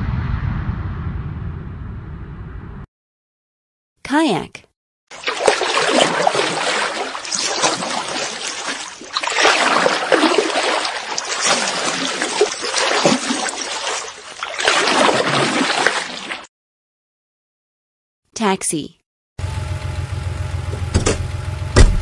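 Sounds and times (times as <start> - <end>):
water splashing around a kayak: 5.1 - 16.5.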